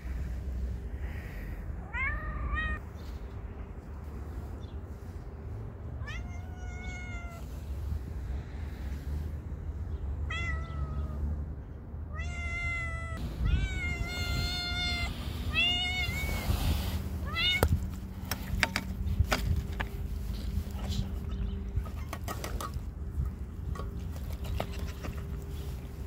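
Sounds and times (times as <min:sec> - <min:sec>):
cats meowing: 0:01.8 - 0:02.8, 0:06.0 - 0:07.6, 0:10.2 - 0:11.3, 0:12.1 - 0:16.6, 0:17.2 - 0:17.9.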